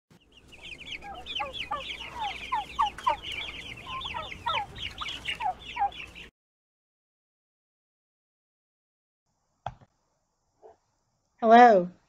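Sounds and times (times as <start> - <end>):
turkeys yelping and chirping: 0.2 - 6.3.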